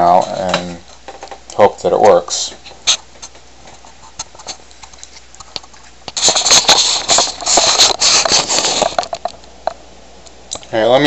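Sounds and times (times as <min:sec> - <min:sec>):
handling rustling and clattering: 0:00.0 - 0:01.5.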